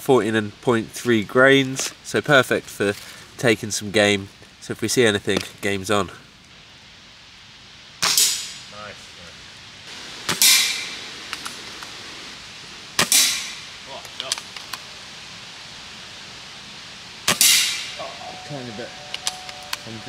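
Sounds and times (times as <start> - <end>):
air rifle shots: 10.3 - 11.0, 13.0 - 13.6, 17.3 - 17.9.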